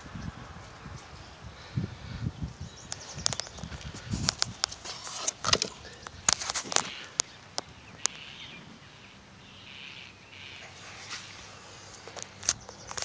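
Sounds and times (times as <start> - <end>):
faint bird chirps: 0.1 - 4.1, 5.8 - 13.0
small knocks: 4.2 - 7.7.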